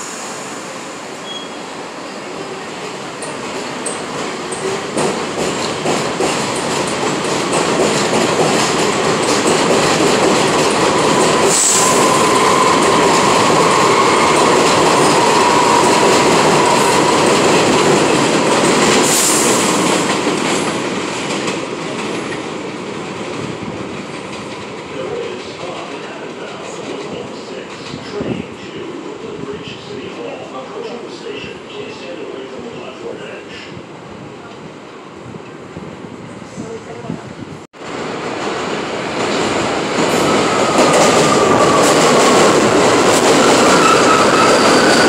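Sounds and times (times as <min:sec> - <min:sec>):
train wheels clattering: 0:03.2 - 0:22.6.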